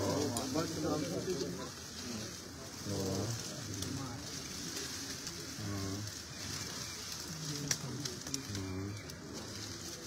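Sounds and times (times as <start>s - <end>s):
men's voices: 0.0s - 1.9s, 2.7s - 4.0s, 5.5s - 6.2s
sharp crackles: 0.0s - 10.0s.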